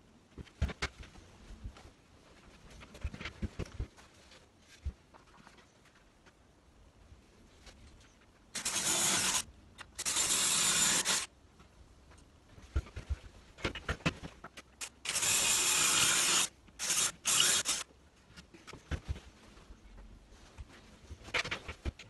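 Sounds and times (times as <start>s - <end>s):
power drill drilling into wood: 8.6s - 9.4s, 10.0s - 11.3s, 15.0s - 17.8s.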